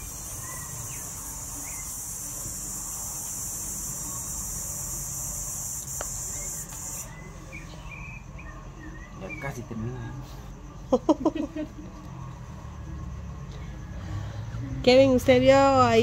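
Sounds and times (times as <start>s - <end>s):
high-pitched insect buzz: 0.0s - 7.6s.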